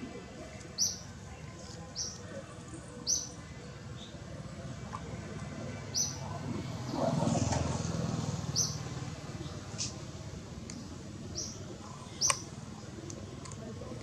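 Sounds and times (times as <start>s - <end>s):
outdoor background: 0.0s - 14.0s
bird chirping: 3.0s - 4.2s, 5.9s - 6.4s, 8.5s - 9.6s, 11.3s - 12.5s.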